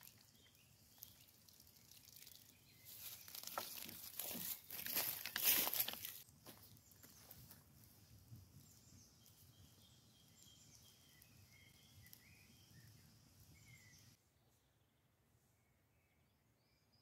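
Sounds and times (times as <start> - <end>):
birds chirping faintly: 6.0 - 17.0.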